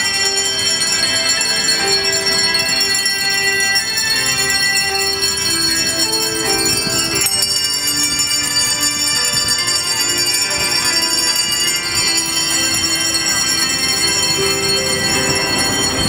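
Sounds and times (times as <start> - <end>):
hand bells playing a tune: 0.0 - 16.0.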